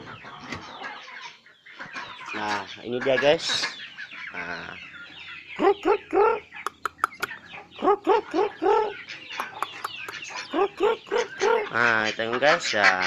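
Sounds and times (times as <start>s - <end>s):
chickens clucking: 0.0s - 13.0s
sharp clicks: 6.7s - 7.3s, 9.4s - 10.2s.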